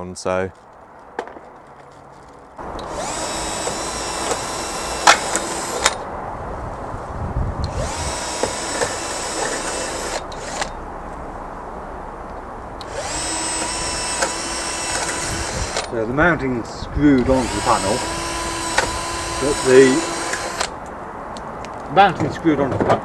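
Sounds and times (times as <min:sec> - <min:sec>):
sharp clicks: 0:02.7 - 0:06.0, 0:07.6 - 0:10.8, 0:12.8 - 0:16.0, 0:17.1 - 0:21.9
cordless drill driving screws: 0:02.8 - 0:06.0, 0:07.7 - 0:10.8, 0:12.8 - 0:15.9, 0:17.2 - 0:20.8.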